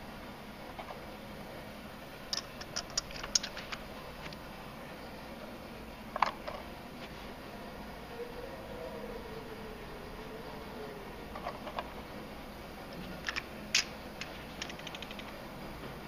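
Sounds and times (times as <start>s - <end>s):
coins clinking: 13.3s - 15.4s.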